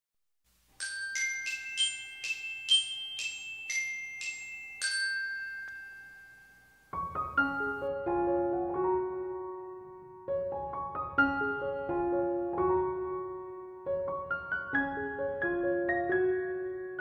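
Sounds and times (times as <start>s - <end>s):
bell-like jingle notes: 0.8s - 7.9s
soft keyboard background music: 6.8s - 17.0s.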